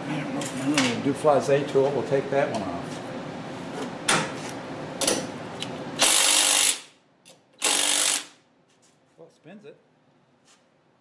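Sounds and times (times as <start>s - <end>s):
power tool bursts: 6.0s - 6.9s, 7.6s - 8.4s.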